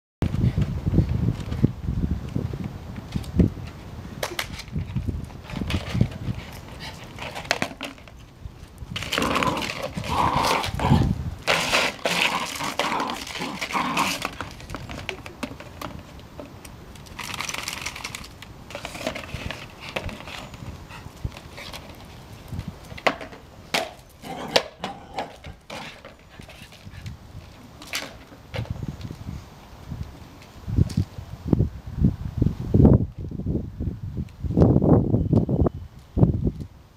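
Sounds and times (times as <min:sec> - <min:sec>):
plastic pot scraping on concrete: 0:04.4 - 0:08.2, 0:09.0 - 0:16.0, 0:17.2 - 0:22.2, 0:23.0 - 0:27.1.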